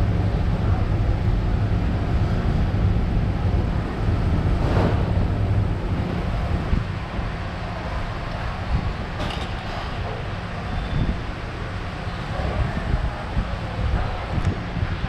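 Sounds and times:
low mechanical hum: 0.0s - 15.0s
rushing noise: 3.1s - 9.2s
brief swish: 4.6s - 5.5s.

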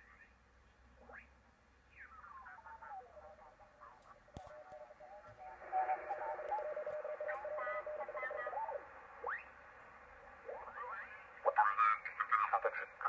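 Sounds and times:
garbled radio voices: 4.6s - 9.5s, 10.4s - 13.0s.

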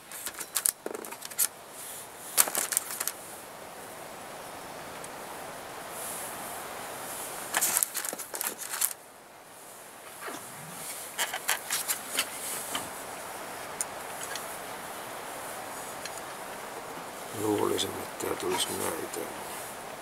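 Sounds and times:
steady background hiss: 0.0s - 20.0s
small parts clicking and rattling: 0.1s - 1.5s, 2.4s - 3.2s, 7.5s - 9.0s.

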